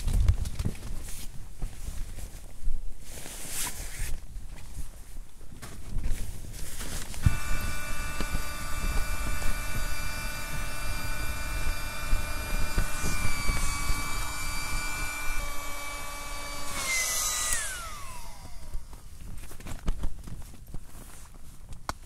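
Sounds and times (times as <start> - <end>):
wind rumble on microphone: 0.0 - 22.0
small electric motor whirring: 7.0 - 19.5.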